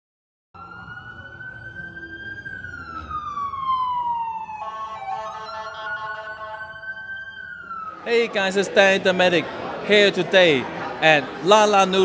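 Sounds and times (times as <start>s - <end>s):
siren wail: 0.6s - 8.5s.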